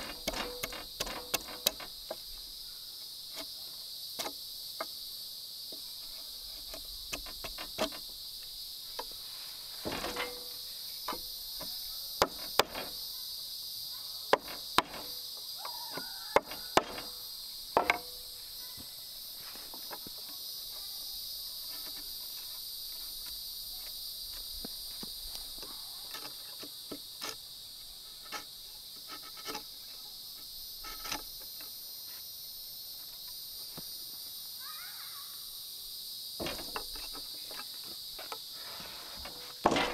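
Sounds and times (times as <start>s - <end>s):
crickets and insects chirping: 0.0s - 39.9s
sharp knocks and taps: 17.8s - 18.1s.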